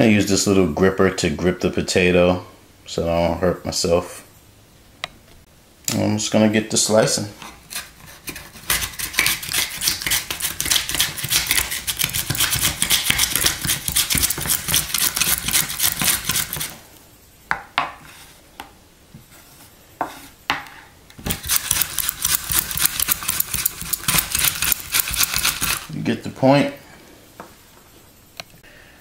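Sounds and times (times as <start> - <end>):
potato sliced on mandoline: 7.5 - 16.8.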